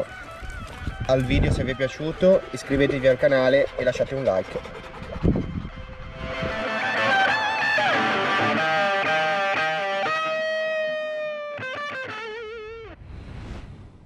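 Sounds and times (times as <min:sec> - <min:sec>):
guitar with vibrato notes: 0:04.6 - 0:13.0.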